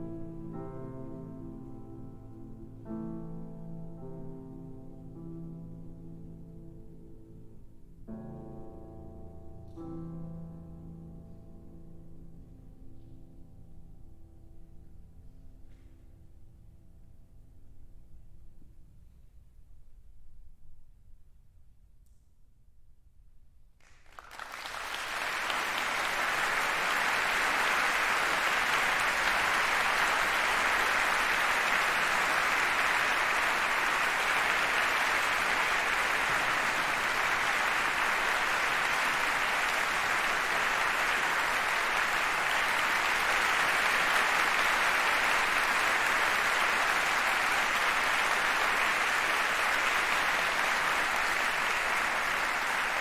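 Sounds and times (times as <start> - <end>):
audience applauding: 23.8 - 53.0.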